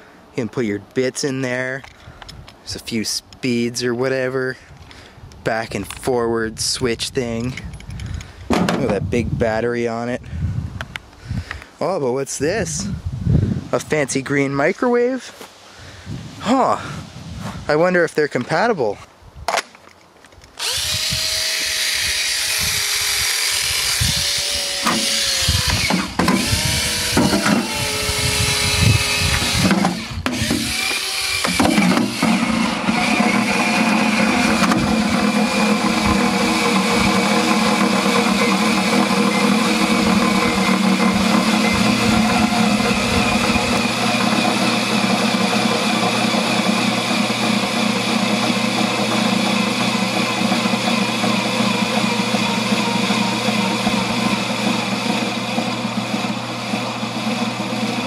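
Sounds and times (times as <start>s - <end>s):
cordless drill motor whine: 20.6s - 58.0s.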